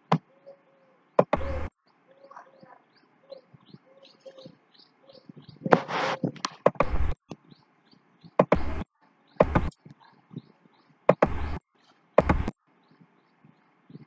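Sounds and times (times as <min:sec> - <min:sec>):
small bird chirping: 0:00.0 - 0:14.0
thumps near microphone: 0:01.2 - 0:01.7, 0:05.4 - 0:07.4, 0:08.4 - 0:10.5, 0:11.1 - 0:11.6, 0:12.2 - 0:12.6.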